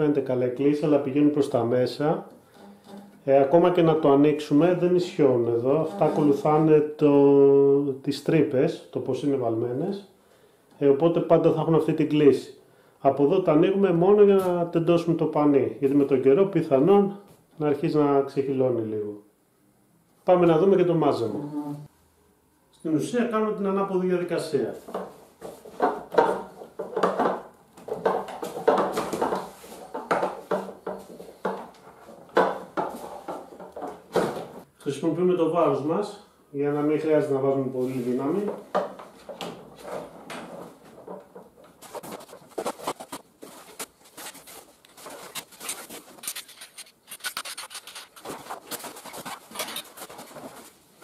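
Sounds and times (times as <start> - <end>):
fabric rubbing and rustling: 39.1 - 51.0.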